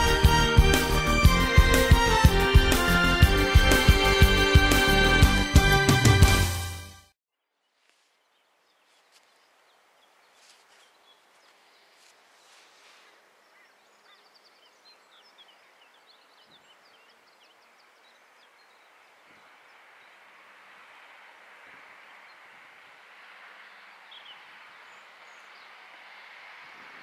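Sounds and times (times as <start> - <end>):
birds chirping: 7.6 - 27.0.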